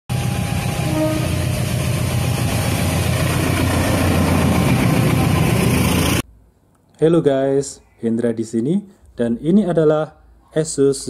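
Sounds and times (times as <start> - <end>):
diesel locomotive engine: 0.1 - 6.2
train on track: 0.1 - 6.2.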